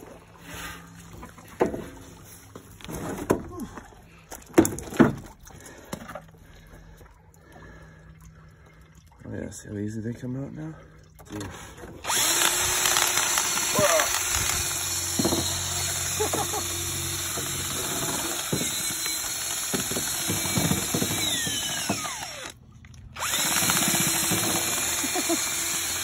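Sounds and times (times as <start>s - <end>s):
drill motor hum: 12.0s - 22.6s, 23.2s - 26.0s.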